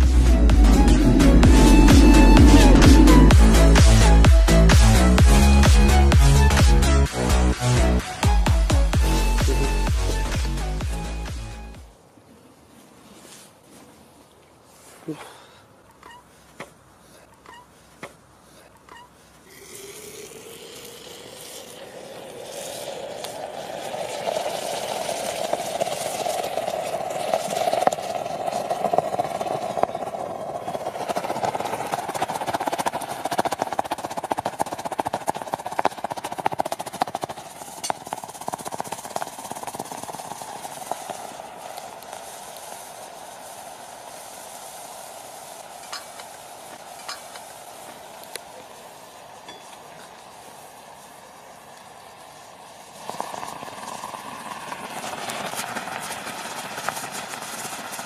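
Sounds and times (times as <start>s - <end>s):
rising hum: 0.0s - 11.9s
molten metal sizzling and bubbling: 19.5s - 34.6s, 37.5s - 58.0s.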